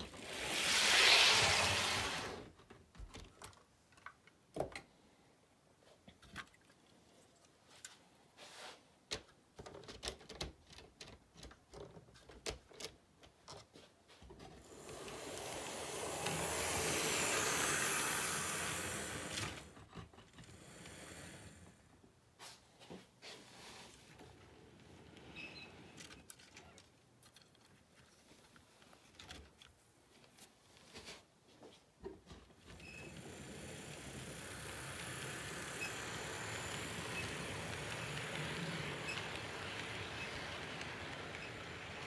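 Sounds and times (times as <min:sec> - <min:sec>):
model trains passing: 0:00.0 - 0:02.5, 0:14.6 - 0:19.8, 0:20.4 - 0:21.9, 0:32.8 - 0:42.0
train rushing rumble: 0:34.0 - 0:42.0.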